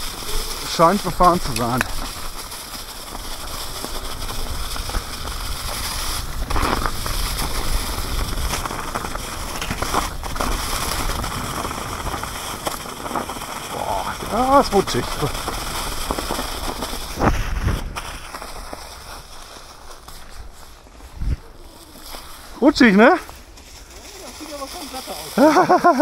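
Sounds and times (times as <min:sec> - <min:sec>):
bike tyres crackling through leaves: 0:00.0 - 0:26.0
wind rumble on microphone: 0:01.5 - 0:19.2, 0:20.4 - 0:21.8.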